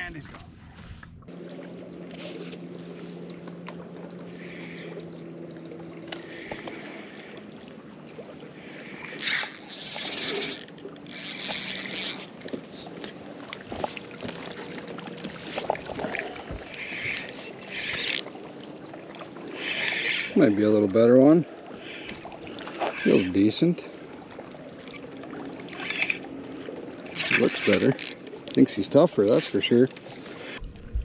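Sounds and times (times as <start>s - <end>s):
low electric motor hum: 0.5s - 20.4s
wind rushing on microphone: 30.6s - 31.0s.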